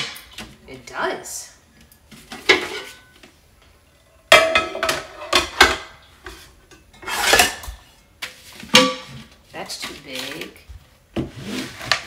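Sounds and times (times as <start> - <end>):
pots and lids clanking: 2.3 - 3.2, 4.2 - 7.9, 8.7 - 9.4.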